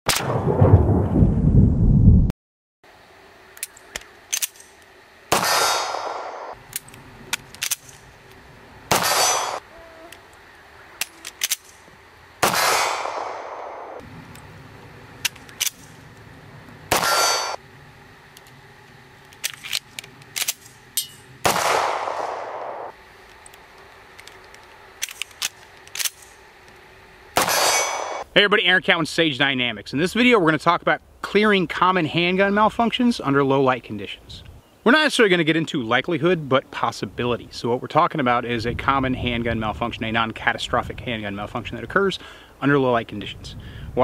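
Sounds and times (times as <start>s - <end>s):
metallic clicks of gun slide: 3.6s - 4.8s, 6.7s - 8.0s, 11.0s - 11.8s, 19.2s - 20.7s, 23.3s - 26.4s
handgun shots: 5.3s - 6.6s, 8.9s - 9.6s, 12.4s - 14.0s, 16.9s - 17.6s, 20.4s - 22.9s, 27.4s - 28.2s.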